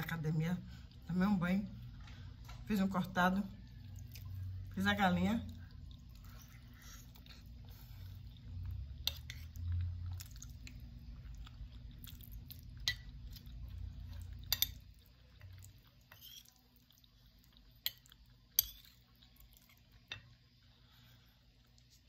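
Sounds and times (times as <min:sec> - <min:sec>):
person chewing food: 0:03.6 - 0:04.8, 0:05.4 - 0:22.0.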